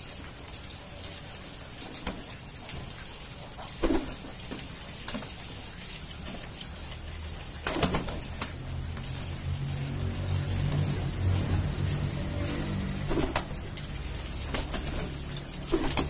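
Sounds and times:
wings flapping: 0:03.8 - 0:05.4, 0:07.6 - 0:09.2, 0:12.3 - 0:13.7, 0:14.3 - 0:16.0.

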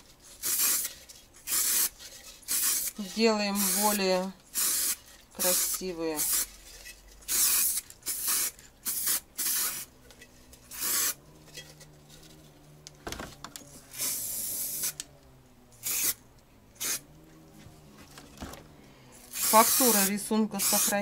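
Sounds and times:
spray can hissing: 0:00.3 - 0:06.6, 0:07.2 - 0:09.9, 0:10.6 - 0:11.2, 0:13.9 - 0:15.0, 0:15.8 - 0:16.2, 0:16.8 - 0:17.0, 0:19.2 - 0:21.0.

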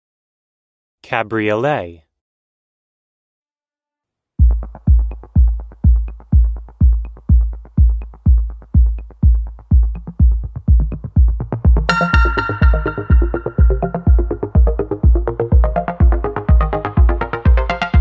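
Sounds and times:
kick drum beat: 0:04.4 - 0:18.0
synth melody: 0:11.9 - 0:18.0.

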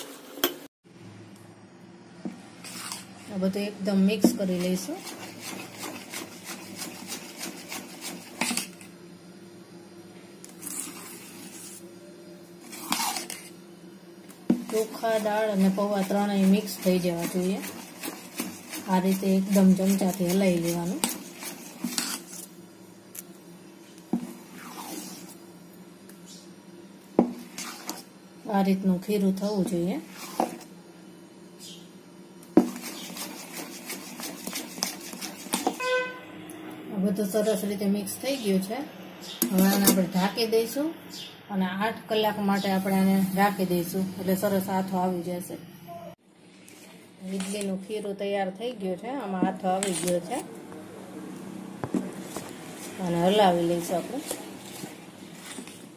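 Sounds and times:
batter mixed by hand in steel bowl: 0:02.2 - 0:09.0, 0:09.8 - 0:25.5, 0:27.0 - 0:30.8, 0:32.4 - 0:36.2, 0:37.1 - 0:40.8, 0:46.5 - 0:50.6, 0:51.8 - 0:55.9.

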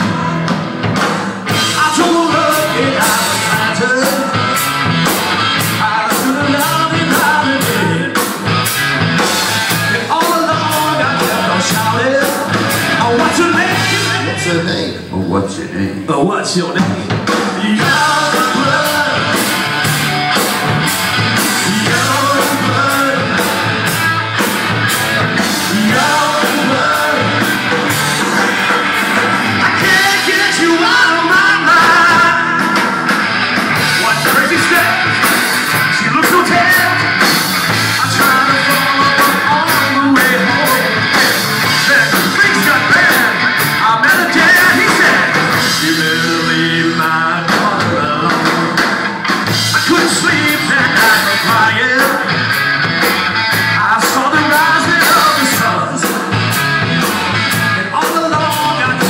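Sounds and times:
rock band playing: 0:00.0 - 0:59.0
man singing and shouting: 0:01.2 - 0:08.6, 0:09.2 - 0:20.4, 0:21.1 - 0:28.3, 0:29.2 - 0:52.6, 0:53.4 - 0:56.5, 0:57.1 - 0:59.0.

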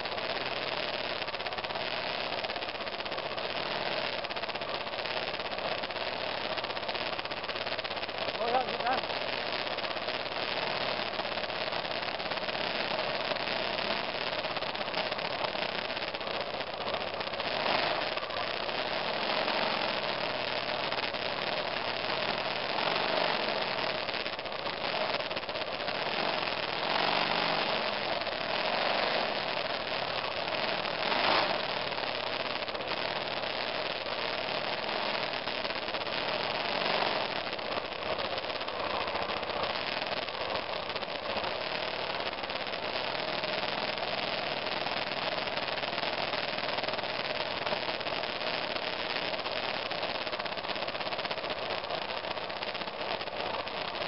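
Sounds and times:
wind and rattle on camera: 0:00.0 - 0:54.0
motorcycle engine running: 0:10.6 - 0:44.0.

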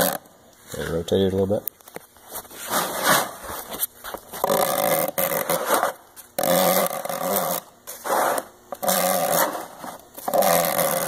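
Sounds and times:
metal point scratching plastic: 0:04.4 - 0:11.0.

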